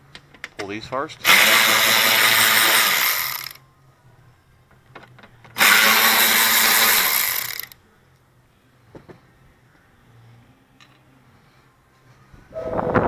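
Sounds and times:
power drill spinning screws: 0:01.2 - 0:03.6, 0:05.5 - 0:07.8.

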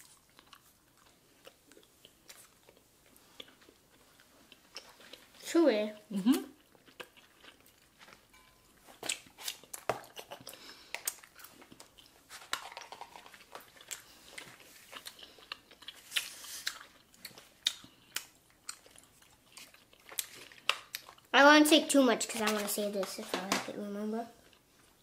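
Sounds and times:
gum chewing smacks: 0:09.0 - 0:12.2, 0:12.8 - 0:21.2.

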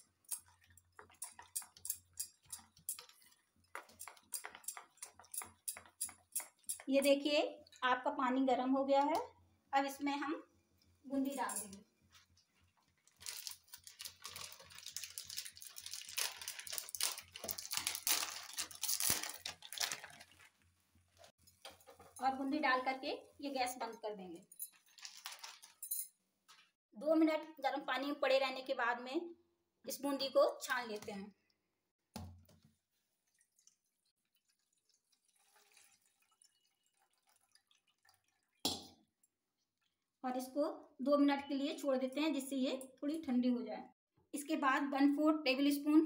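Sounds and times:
water dripping and trickling: 0:00.0 - 0:08.2, 0:10.7 - 0:22.2, 0:32.4 - 0:40.1
dry snack crinkling and clicking: 0:13.0 - 0:20.5, 0:24.9 - 0:25.8.

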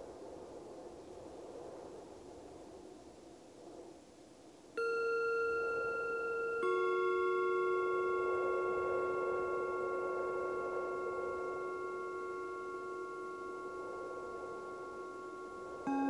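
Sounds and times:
soft wind: 0:00.0 - 0:16.0
lower-pitched singing bowl ringing: 0:04.8 - 0:16.0
singing bowl ringing: 0:04.8 - 0:16.0.

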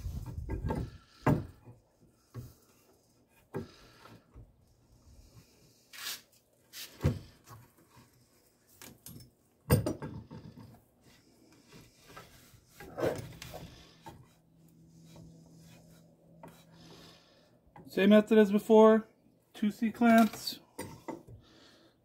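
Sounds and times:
knocks and bumps of handling: 0:00.1 - 0:02.6, 0:08.8 - 0:10.8.

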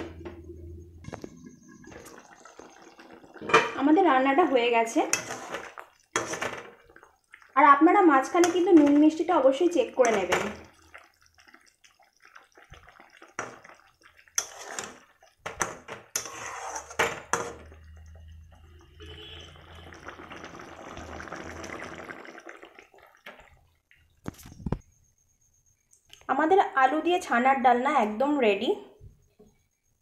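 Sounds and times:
wet stirring of thick curry: 0:05.0 - 0:07.6, 0:10.0 - 0:15.4, 0:16.1 - 0:17.0.

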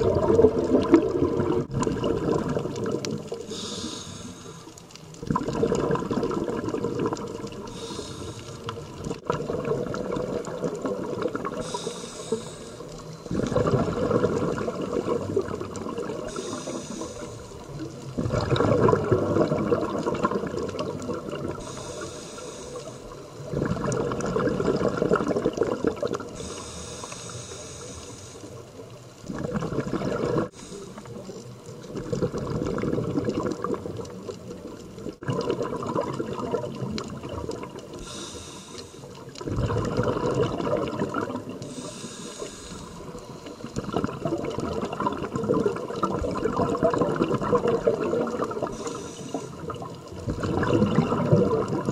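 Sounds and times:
exhaled bubbles rushing: 0:00.0 - 0:03.7, 0:05.1 - 0:22.0, 0:23.1 - 0:26.6, 0:29.2 - 0:30.6, 0:31.7 - 0:38.3, 0:39.2 - 0:42.0, 0:42.9 - 0:51.9
regulator inhale hiss: 0:03.4 - 0:04.9, 0:07.6 - 0:08.9, 0:11.6 - 0:13.3, 0:16.2 - 0:17.9, 0:21.5 - 0:23.5, 0:26.3 - 0:28.8, 0:30.5 - 0:31.5, 0:37.9 - 0:39.3, 0:41.6 - 0:43.8, 0:48.7 - 0:49.9.

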